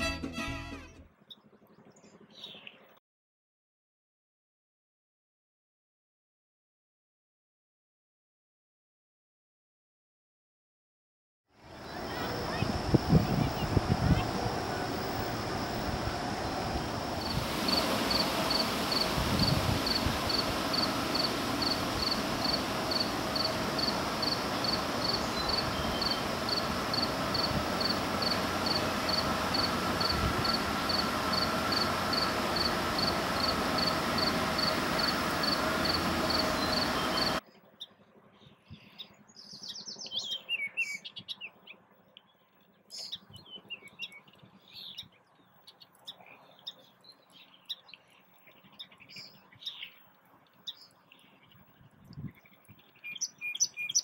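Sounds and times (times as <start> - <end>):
steady hiss: 11.7 - 37.4.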